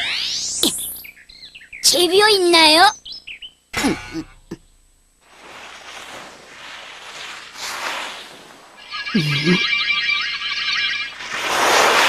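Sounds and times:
toy car skidding hissing whoosh: 0:11.2 - 0:12.0.

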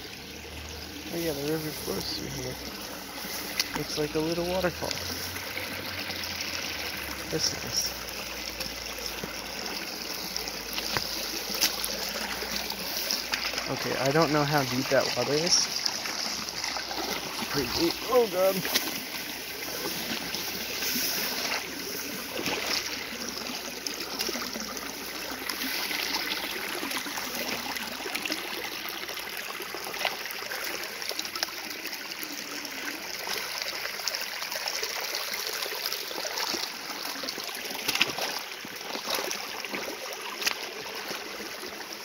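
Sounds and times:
river water flowing: 0:00.0 - 0:42.0
splashing footsteps in water: 0:03.0 - 0:04.0, 0:08.5 - 0:27.7, 0:36.4 - 0:41.2.

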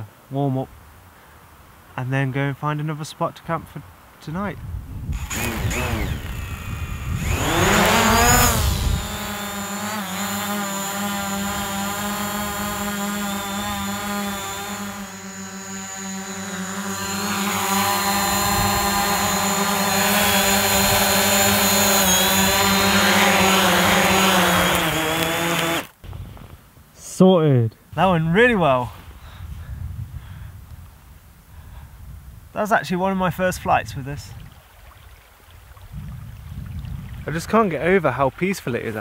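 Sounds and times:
drone propellers whining: 0:05.1 - 0:26.2.

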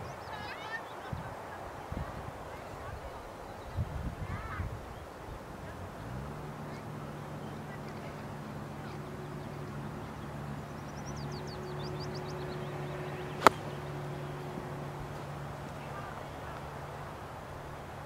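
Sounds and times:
low hum: 0:07.2 - 0:17.5
golf club striking ball: 0:13.3 - 0:14.6.

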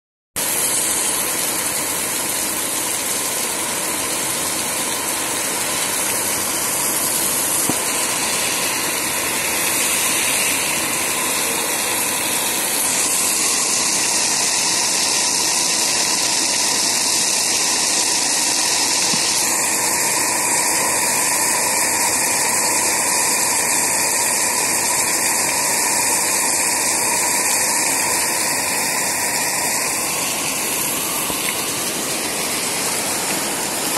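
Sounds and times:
heavy rain pouring: 0:00.4 - 0:33.9.

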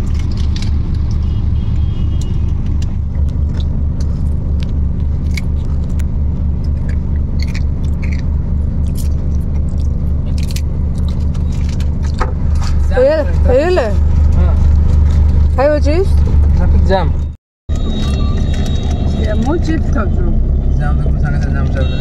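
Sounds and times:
car engine idling: 0:00.0 - 0:22.0.

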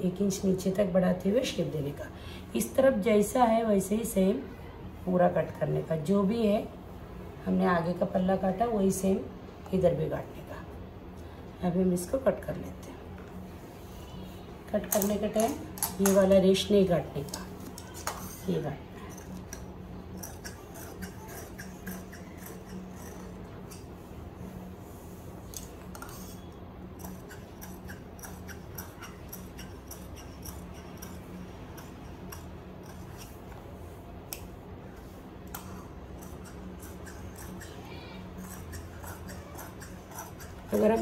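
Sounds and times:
faint steady hum: 0:00.0 - 0:41.0
shears snipping fabric: 0:17.2 - 0:23.9, 0:25.4 - 0:33.7, 0:34.3 - 0:41.0.

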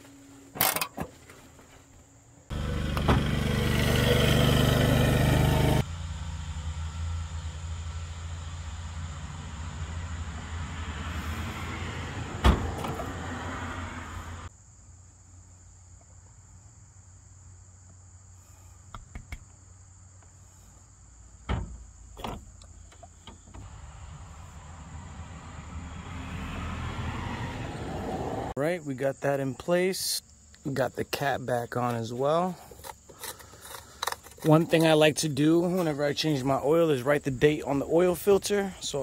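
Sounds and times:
insects chirring: 0:14.5 - 0:27.4, 0:28.6 - 0:39.0.

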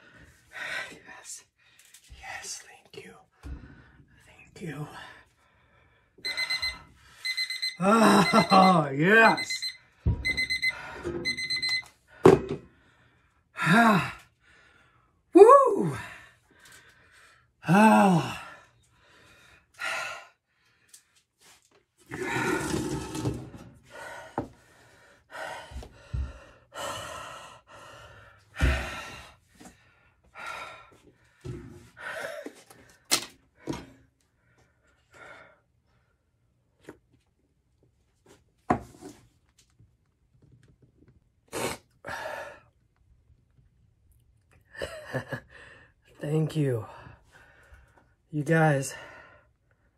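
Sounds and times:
man breathing hard and gasping: 0:12.0 - 0:15.3, 0:15.9 - 0:21.2, 0:23.9 - 0:33.8, 0:42.0 - 0:42.8, 0:45.5 - 0:46.0.

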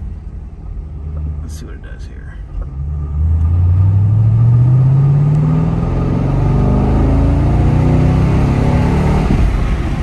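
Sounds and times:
car engine accelerating hard: 0:02.6 - 0:10.0.

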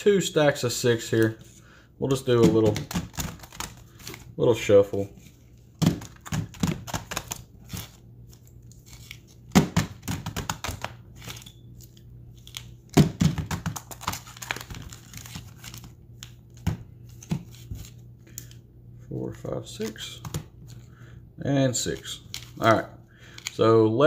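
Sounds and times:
foil wrappers crinkling: 0:10.5 - 0:16.4.

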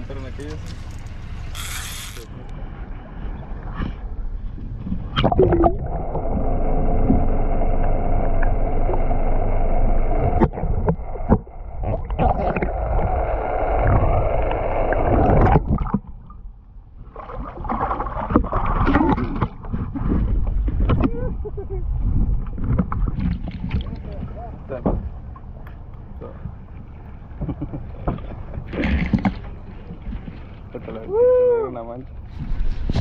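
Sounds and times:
steady hum: 0:00.0 - 0:17.1
rough water noise: 0:00.0 - 0:31.2
muffled underwater gurgling: 0:05.0 - 0:16.0.

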